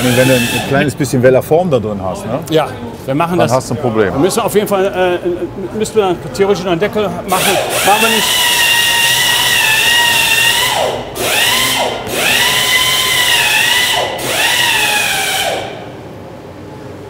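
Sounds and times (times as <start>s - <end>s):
rotary grinder whining: 0.0s - 0.9s, 7.3s - 15.8s.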